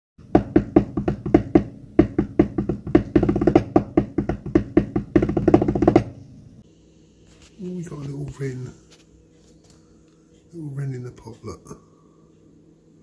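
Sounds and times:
solo drum rolls: 0.2 - 6.2.

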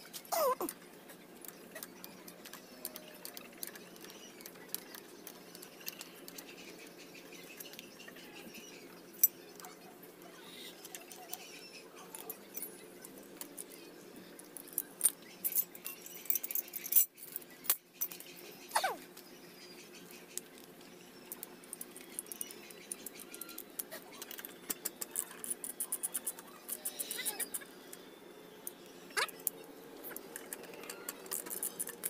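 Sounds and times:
tools and bolts clinking: 14.6 - 18.3.

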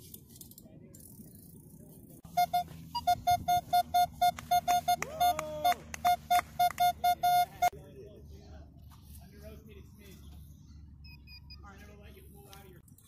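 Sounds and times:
higher beep: 2.3 - 7.7
metal detector beeping: 2.3 - 7.8.

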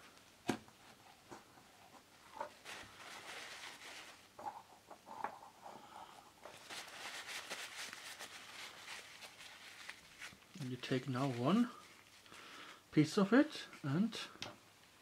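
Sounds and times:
paper rustling and crinkling: 1.3 - 4.6, 6.4 - 12.3.

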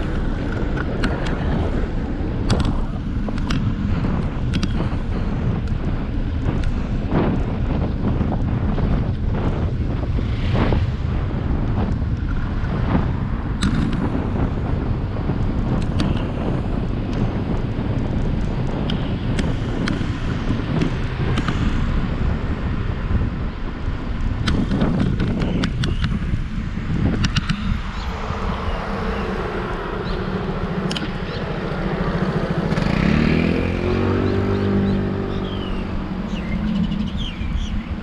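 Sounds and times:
wind buffeting microphone: 0.0 - 38.0
sharp clicks and rattles: 2.4 - 6.8, 24.2 - 28.0.

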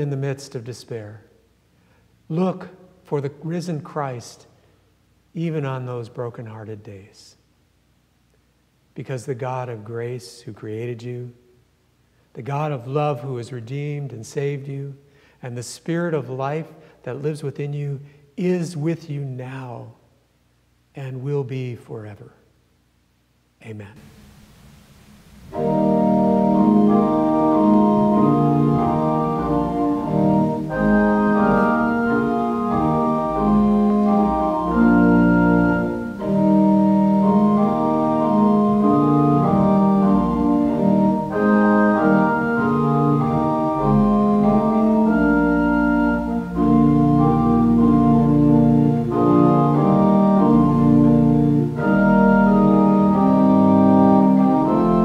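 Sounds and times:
pipe organ chords: 24.0 - 55.0.

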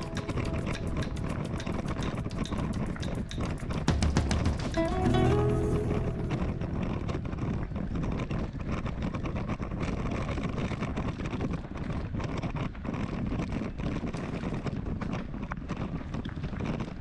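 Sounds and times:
music chord: 0.0 - 2.4, 4.1 - 8.1
rumble with clicks and rattles: 0.0 - 17.0
wind buffeting microphone: 0.0 - 17.0.

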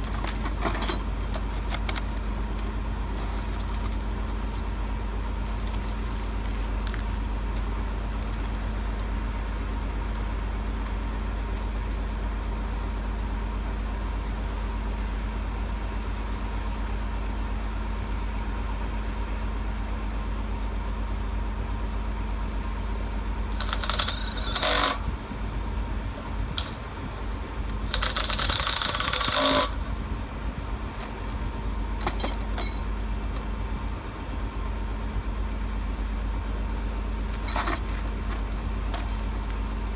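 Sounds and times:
engine humming steadily: 0.0 - 39.9.

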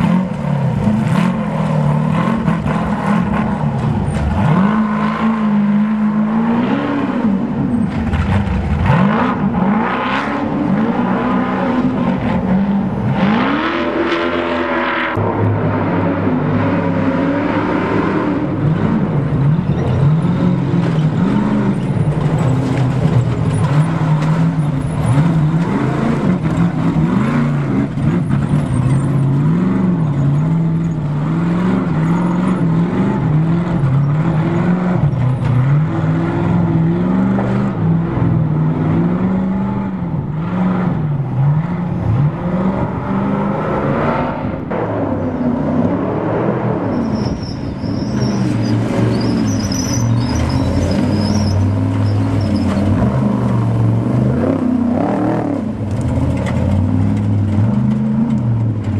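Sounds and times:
truck engines revving: 0.0 - 58.9.

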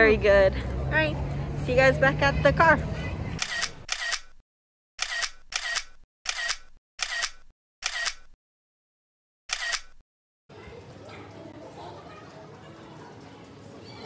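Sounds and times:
camera shutter click: 3.4 - 4.3, 5.0 - 8.4, 9.5 - 10.0.

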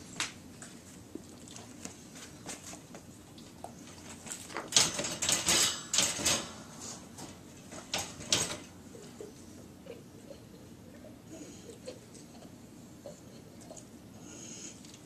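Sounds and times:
wire dog crate rattling: 4.4 - 6.5, 7.7 - 8.7.

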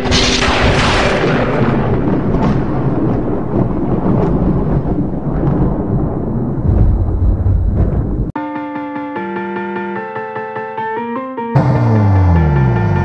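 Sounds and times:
thunderclap and low rumble: 0.0 - 8.4.

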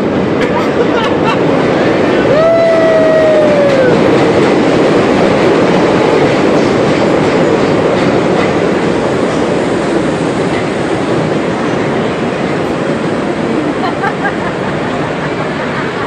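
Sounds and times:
train rumbling past: 0.0 - 16.0
rhythmic clicking of wheels: 3.3 - 16.0.

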